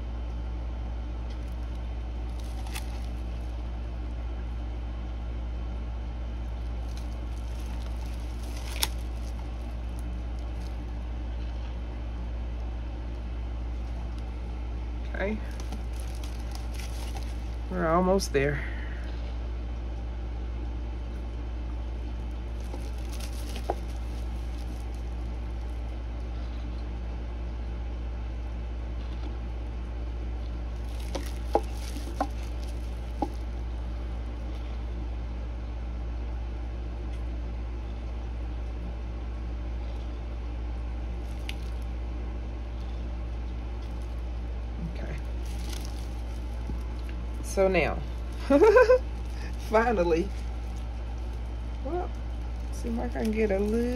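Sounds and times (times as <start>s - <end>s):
steady low hum: 0.0s - 53.9s
squishy handling noises: 1.2s - 4.0s, 6.4s - 18.2s, 21.0s - 26.8s, 30.4s - 34.9s, 40.9s - 53.9s.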